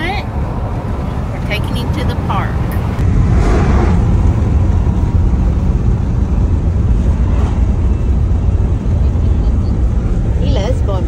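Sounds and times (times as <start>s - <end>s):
car road noise rumble: 0.0s - 11.0s.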